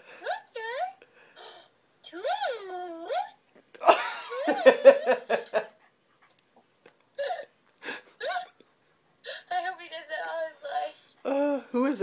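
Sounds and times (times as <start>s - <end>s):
person laughing in pulses: 3.8s - 5.8s.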